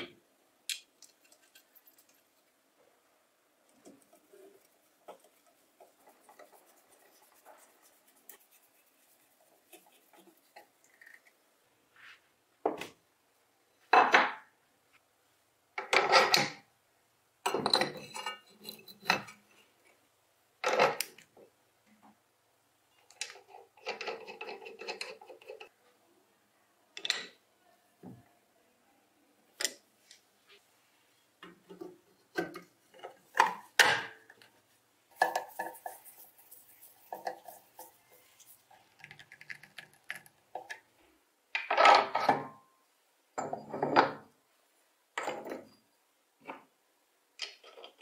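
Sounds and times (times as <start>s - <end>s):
small clicks and rubs: 0.7s - 2.6s, 3.6s - 11.4s, 34.3s - 40.9s.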